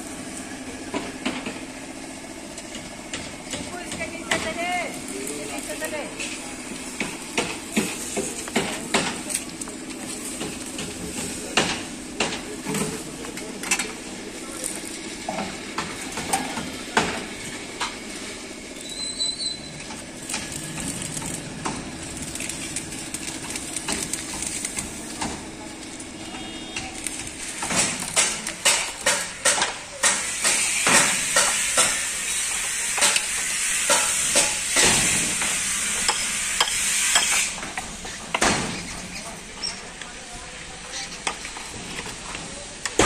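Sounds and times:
sharp knocks and clatter: 0:07.0 - 0:09.4, 0:10.4 - 0:13.0, 0:27.6 - 0:32.0, 0:33.0 - 0:39.1
steady hiss: 0:30.0 - 0:39.8.

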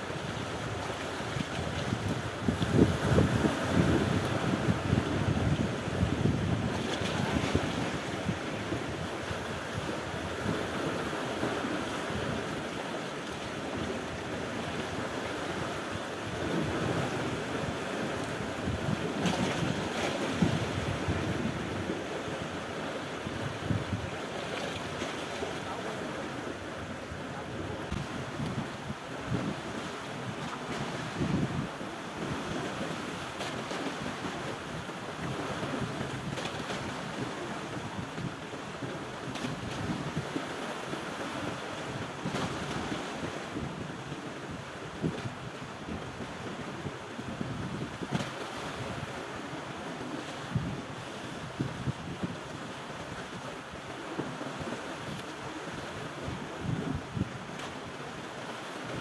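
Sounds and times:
sea waves washing: 0:00.0 - 0:43.7
wind buffeting microphone: 0:00.7 - 0:12.5, 0:16.3 - 0:22.5, 0:23.2 - 0:24.6, 0:25.7 - 0:32.9, 0:50.5 - 0:52.6, 0:56.2 - 0:57.3.

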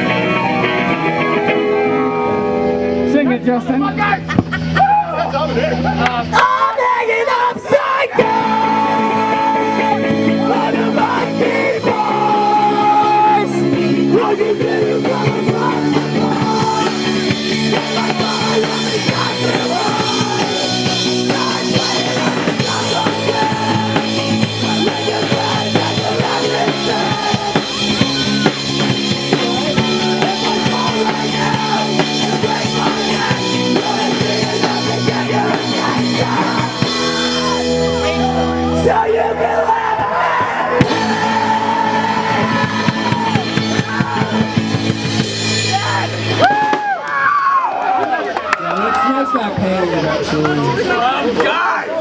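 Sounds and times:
electric guitar: 0:00.0 - 0:51.5
drum kit: 0:08.2 - 0:47.9.

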